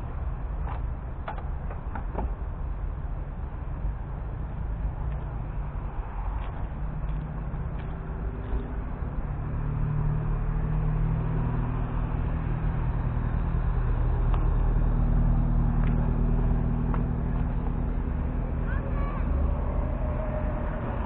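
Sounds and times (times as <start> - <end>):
large vehicle engine humming: 0.0 - 21.0.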